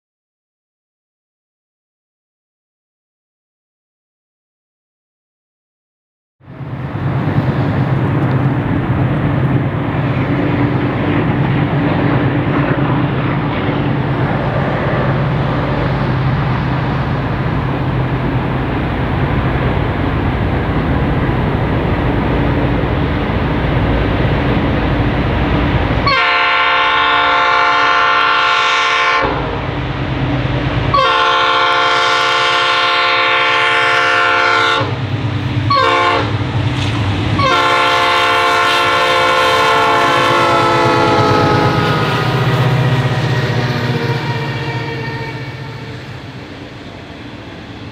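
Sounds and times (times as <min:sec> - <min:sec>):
diesel locomotive engine drone: 0:06.4 - 0:47.9
train air horn blasts: 0:26.0 - 0:29.6, 0:30.9 - 0:35.0, 0:35.7 - 0:36.4, 0:37.4 - 0:46.2.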